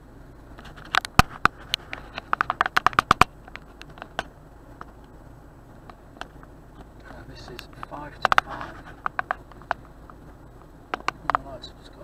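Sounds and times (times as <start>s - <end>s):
sharp clicks and taps: 0.9s - 5.2s, 5.8s - 11.5s.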